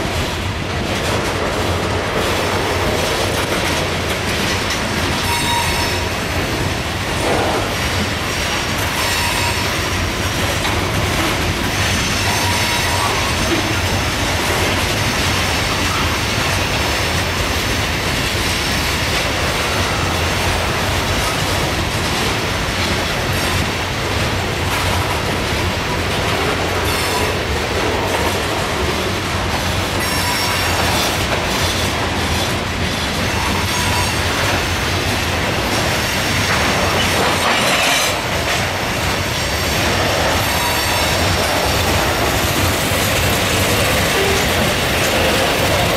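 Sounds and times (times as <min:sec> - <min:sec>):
train cars rumbling past: 0:00.0 - 0:45.9
wheels clacking over rail joints: 0:00.0 - 0:45.9
train wheel squeal: 0:05.0 - 0:06.4, 0:08.7 - 0:10.1, 0:11.7 - 0:14.0, 0:26.8 - 0:27.6, 0:29.0 - 0:34.9, 0:35.7 - 0:38.3, 0:39.0 - 0:45.9.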